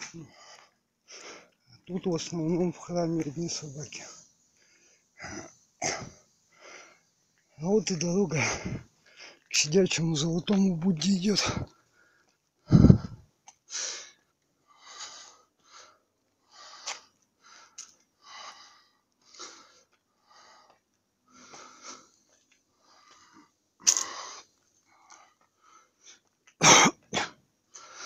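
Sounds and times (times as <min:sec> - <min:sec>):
man breathing hard: 0:08.4 - 0:09.5, 0:11.4 - 0:26.3.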